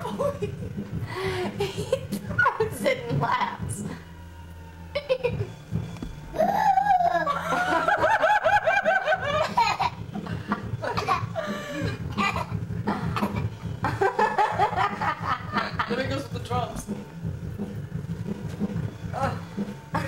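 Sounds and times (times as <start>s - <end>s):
person laughing: 0.0s - 2.7s, 6.4s - 16.0s
low hum: 0.0s - 20.0s.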